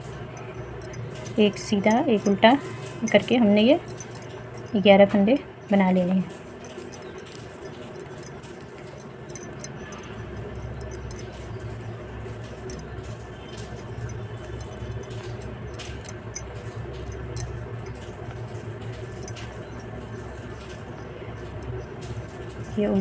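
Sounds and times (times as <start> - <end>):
steady low hum: 0.0 - 23.0
knitting needles clicking: 3.0 - 4.8, 9.3 - 11.3.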